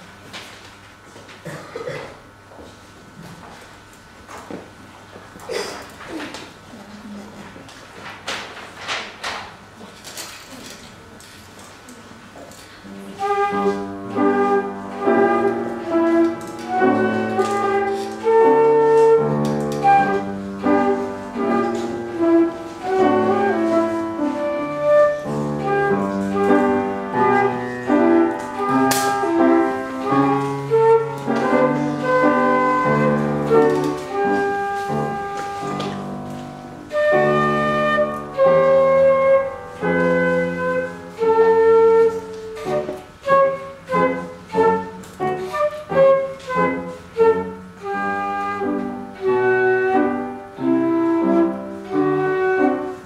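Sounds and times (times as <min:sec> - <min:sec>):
piano accompaniment: 0:12.8 - 0:53.0
flute melody: 0:13.0 - 0:53.0.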